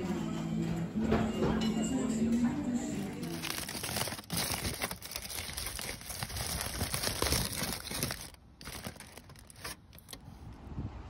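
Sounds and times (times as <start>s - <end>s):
aluminium foil crinkling: 3.0s - 10.2s.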